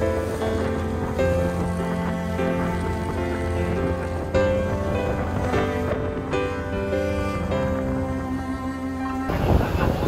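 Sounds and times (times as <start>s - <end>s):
background music with held notes: 0.0s - 10.0s.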